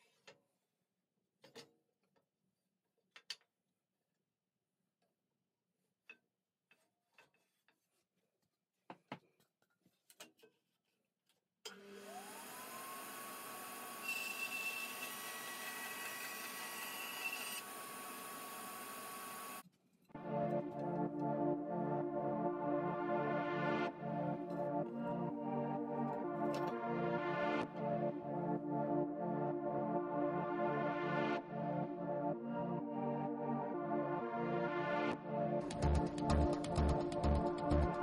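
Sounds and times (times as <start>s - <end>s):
bandsaw motor running: 11.7s - 19.6s
blade cutting acrylic: 13.2s - 19.6s.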